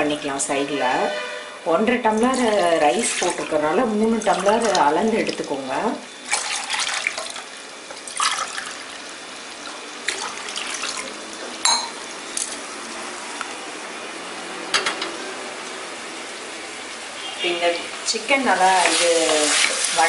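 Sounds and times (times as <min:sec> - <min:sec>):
water pouring into pot: 0:02.2 - 0:12.6.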